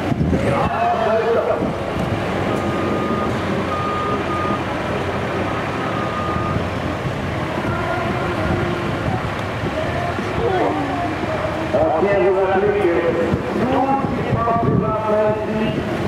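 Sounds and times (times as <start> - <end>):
heavy diesel trucks running: 0.0 - 16.0
reversing alarm beeping: 2.5 - 6.7.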